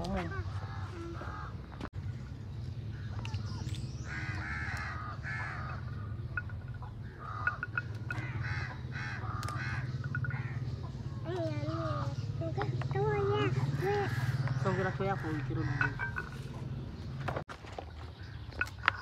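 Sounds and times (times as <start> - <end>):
crow cawing: 0.5 - 1.6, 4.1 - 6.2, 7.0 - 10.8, 13.8 - 16.4.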